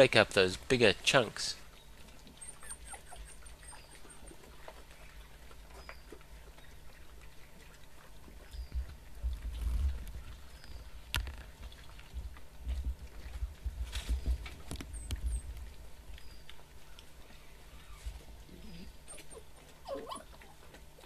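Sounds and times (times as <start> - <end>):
scuffling and chewing: 0.0 - 21.0
pups squeaking: 1.6 - 9.3, 14.0 - 21.0.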